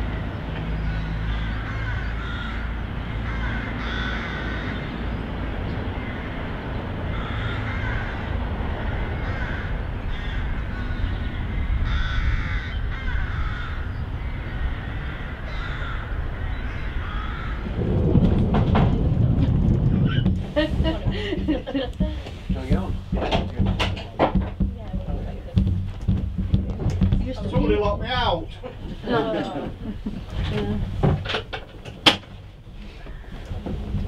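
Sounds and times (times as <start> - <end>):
electric tram running: 0.0 - 34.0
steady low rumble: 0.0 - 34.0
birds giving harsh calls: 0.7 - 17.8.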